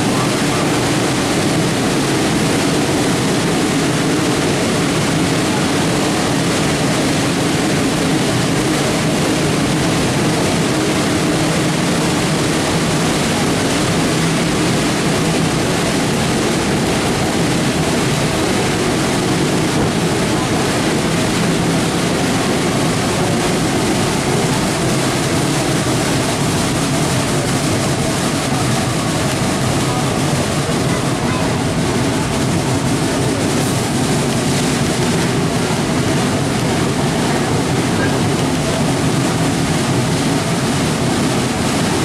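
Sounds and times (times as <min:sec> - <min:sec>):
train running on rails: 0:00.0 - 0:42.0.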